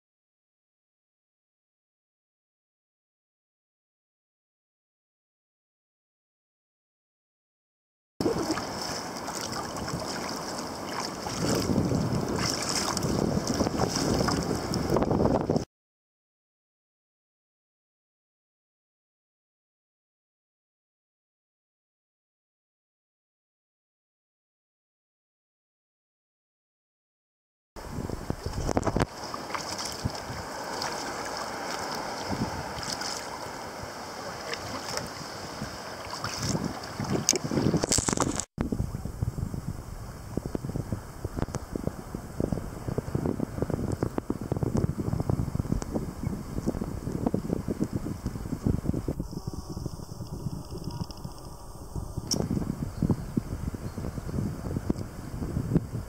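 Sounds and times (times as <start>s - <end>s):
paddle blades splashing: 8.2s - 15.0s, 28.3s - 38.5s
water washing along hull: 8.2s - 15.6s, 27.8s - 39.2s
wind buffeting microphone: 8.2s - 15.7s, 27.8s - 56.0s.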